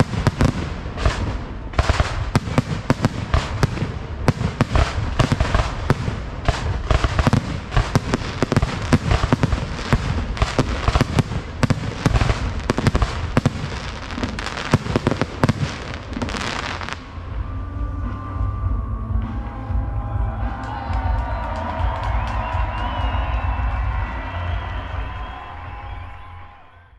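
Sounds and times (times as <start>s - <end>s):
crackling fireworks stars: 0.0s - 18.5s
music: 0.1s - 26.9s.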